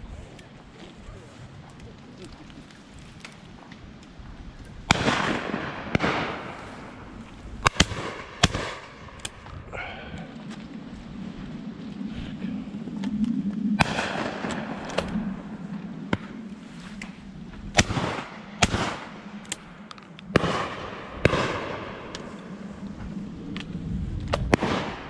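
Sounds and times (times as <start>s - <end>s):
shotgun shots with echo: 4.9s - 6.6s, 7.6s - 8.9s, 17.8s - 19.1s, 20.3s - 22.0s.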